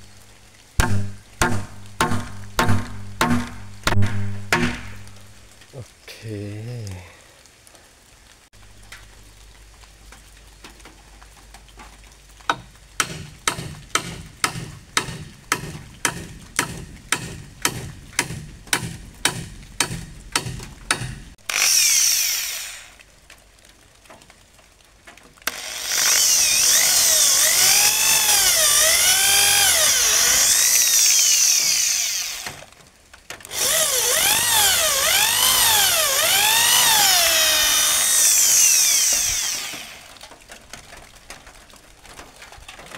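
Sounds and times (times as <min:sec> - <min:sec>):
electric drill boring into wood: 0:21.4 - 0:23.0, 0:25.5 - 0:32.7, 0:33.5 - 0:40.2.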